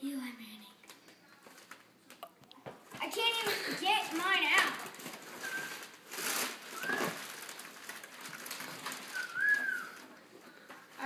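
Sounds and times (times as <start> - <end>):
cardboard and packaging rustling: 0.9 - 11.0.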